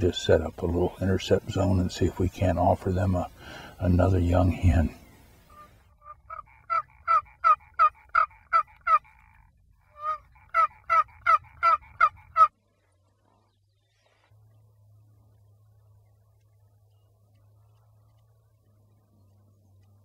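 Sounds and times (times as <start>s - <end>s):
turkey box call yelps: 5.5s - 12.5s.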